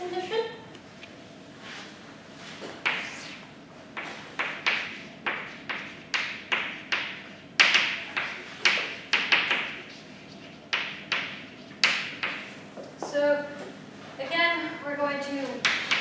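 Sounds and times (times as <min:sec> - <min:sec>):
chalk tapping on blackboard: 0:02.8 - 0:03.4, 0:04.0 - 0:12.4.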